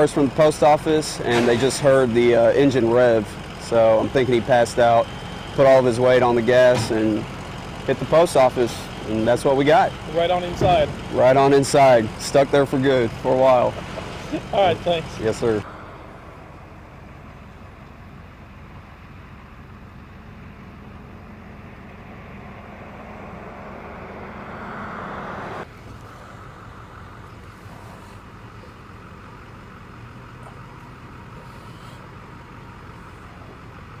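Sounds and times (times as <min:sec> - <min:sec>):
road traffic rumble: 0:00.0 - 0:34.0
vehicle passing: 0:21.4 - 0:34.0.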